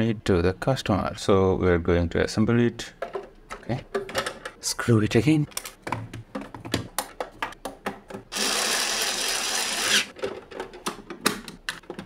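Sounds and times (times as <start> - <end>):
plastic parts clicking and knocking: 3.0 - 4.6, 5.4 - 8.4, 10.1 - 12.0
power screwdriver running: 8.3 - 10.1.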